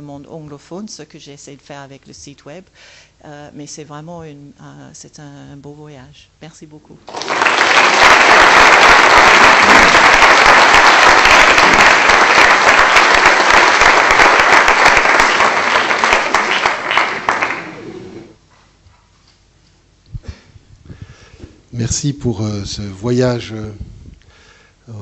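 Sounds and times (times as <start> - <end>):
audience applauding: 7.1 - 18.3.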